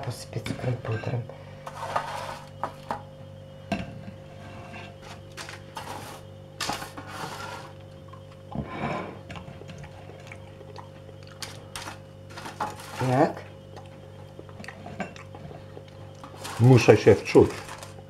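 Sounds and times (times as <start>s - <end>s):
steady low hum: 0.0s - 18.0s
paper rustling: 16.2s - 18.0s.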